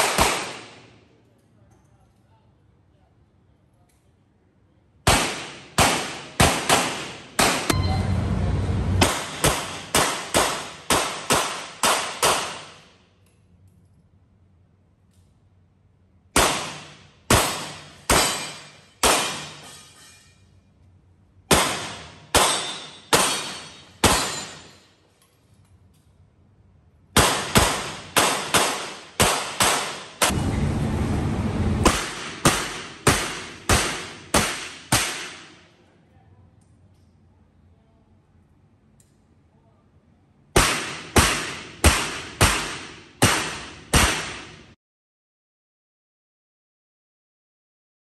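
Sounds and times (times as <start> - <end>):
rushing noise: 7.7 - 9.1, 30.3 - 31.9.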